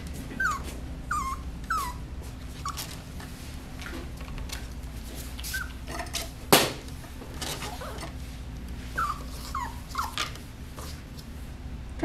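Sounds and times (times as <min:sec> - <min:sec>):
puppy whimpering: 0:00.3 - 0:03.0, 0:05.5 - 0:05.9, 0:07.5 - 0:08.2, 0:09.0 - 0:10.2.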